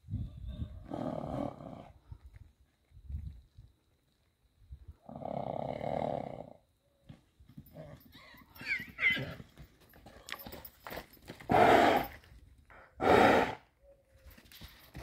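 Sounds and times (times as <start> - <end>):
hoofbeats on soft ground: 6.9 - 15.0
horse snorting: 11.5 - 12.1, 13.0 - 13.6.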